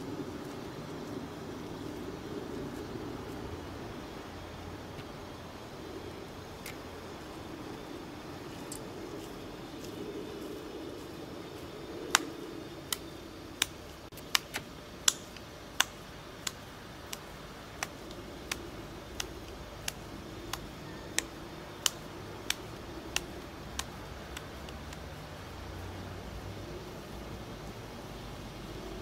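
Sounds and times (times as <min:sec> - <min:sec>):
wet slaps of minced meat: 0:12.1 - 0:13.0, 0:17.8 - 0:25.1.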